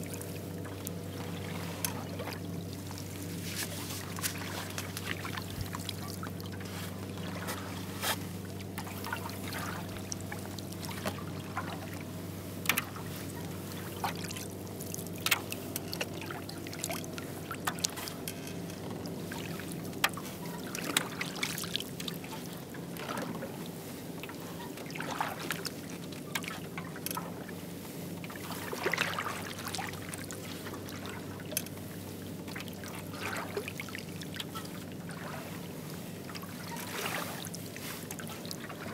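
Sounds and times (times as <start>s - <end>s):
water drips and small splashes: 0.0s - 27.6s, 28.2s - 38.9s
paddle dipping through water: 0.0s - 38.9s
steady low hum: 0.0s - 38.9s.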